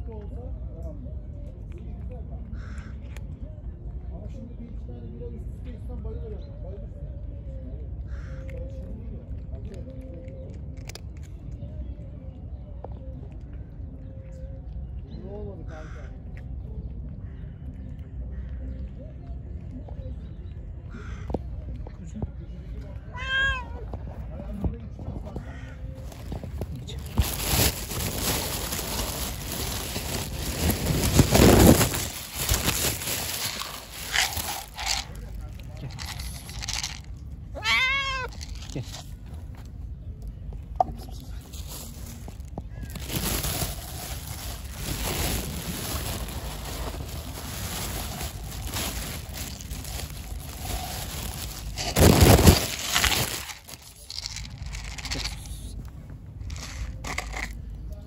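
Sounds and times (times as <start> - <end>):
plastic bag rustling: 26.0 - 37.1, 37.8 - 39.0, 41.5 - 55.5, 56.4 - 57.6.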